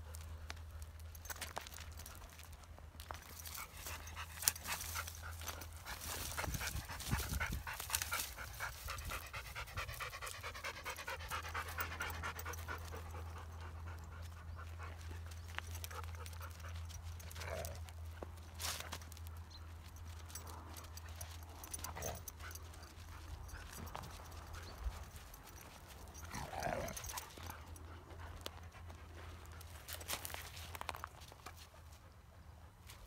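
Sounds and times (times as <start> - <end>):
dogs panting: 0.0 - 33.0.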